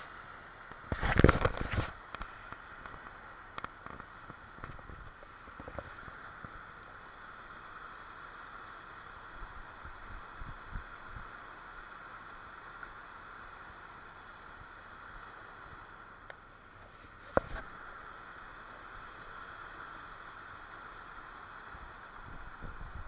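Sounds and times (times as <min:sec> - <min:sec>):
rocky stream rushing: 0:00.0 - 0:23.0
faint clicks: 0:00.6 - 0:06.6
hand handling camera: 0:00.9 - 0:02.3.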